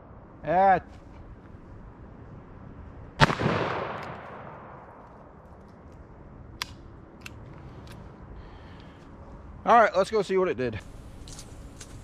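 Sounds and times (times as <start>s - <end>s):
revolver gunshot with echo: 3.2s - 4.8s.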